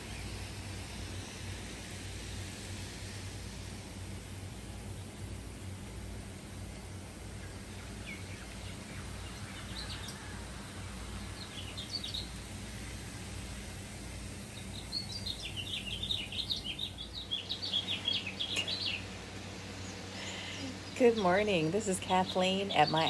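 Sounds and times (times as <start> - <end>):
steady low hum: 0.0 - 23.0
birds chirping: 7.4 - 13.0, 14.4 - 23.0.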